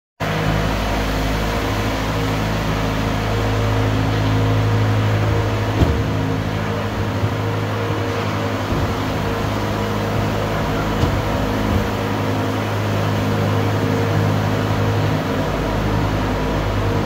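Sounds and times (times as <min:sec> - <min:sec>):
low mechanical hum: 0:00.2 - 0:17.0.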